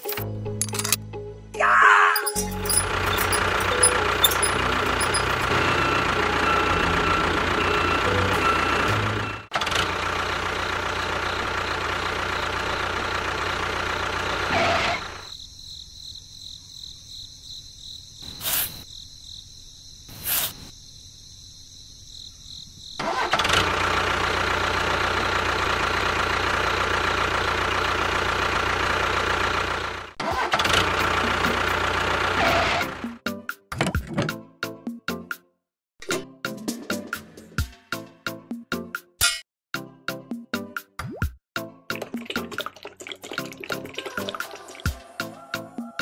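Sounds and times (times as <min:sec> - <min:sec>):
miniature tractor engine running: 0:02.3 - 0:15.2, 0:23.0 - 0:33.0.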